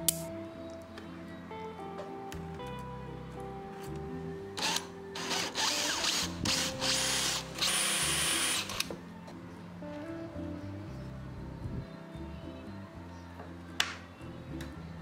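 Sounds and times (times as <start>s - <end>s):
power drill boring into plywood: 4.6s - 8.9s.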